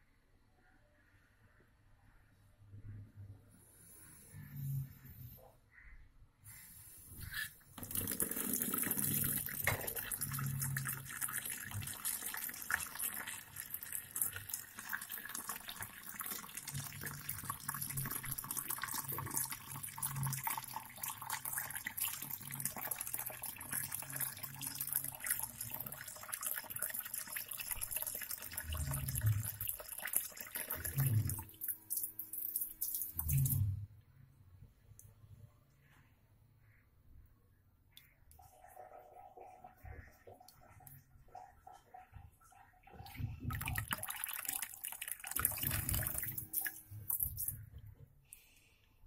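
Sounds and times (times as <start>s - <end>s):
tap water splashing into tub: 7.8s - 10.2s.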